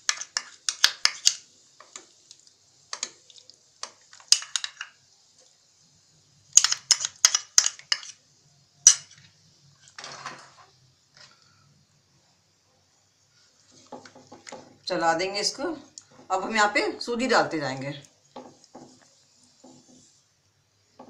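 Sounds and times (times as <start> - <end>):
spoon scraping: 0.0 - 2.0, 2.9 - 5.0, 6.6 - 8.2, 8.8 - 11.3.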